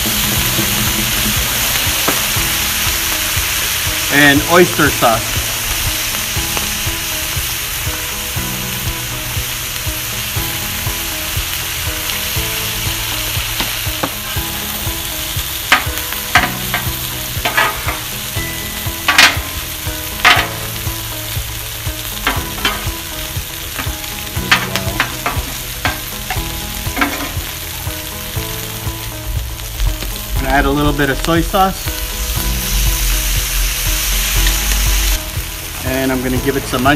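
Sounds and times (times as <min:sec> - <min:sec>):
food sizzling on griddle: 0:00.0 - 0:36.9
metal spatula scraping griddle: 0:15.7 - 0:18.1, 0:19.0 - 0:20.8, 0:22.2 - 0:23.1, 0:23.7 - 0:27.6.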